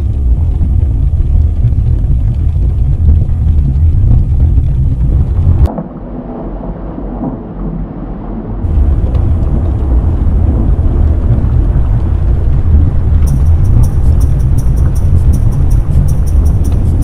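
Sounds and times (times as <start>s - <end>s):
volcano rumbling: 0.0s - 17.0s.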